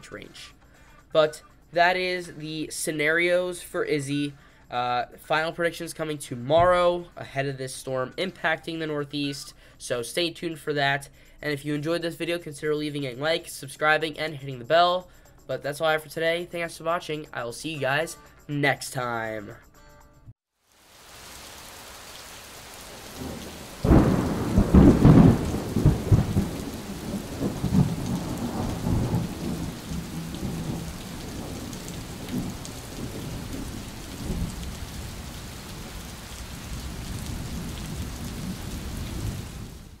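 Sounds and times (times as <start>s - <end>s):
steady rain: 20.6s - 40.0s
thunder crack and rumble: 23.2s - 40.0s.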